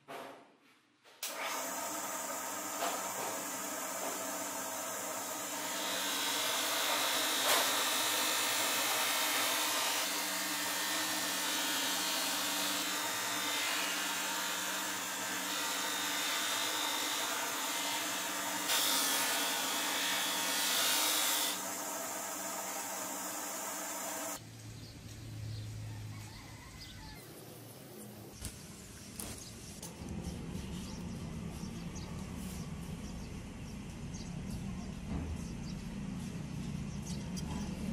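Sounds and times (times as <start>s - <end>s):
power tool running: 1.2s - 24.4s.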